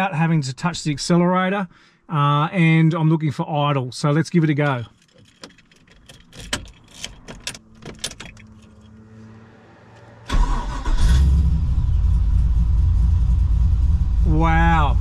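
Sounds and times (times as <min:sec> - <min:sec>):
car engine cranking: 0:04.9 - 0:12.1.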